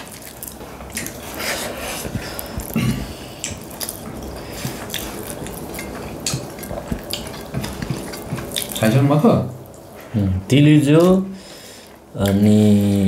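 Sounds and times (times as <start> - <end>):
chewing: 0.0 - 9.0
fingers mixing rice and curry: 0.0 - 9.1.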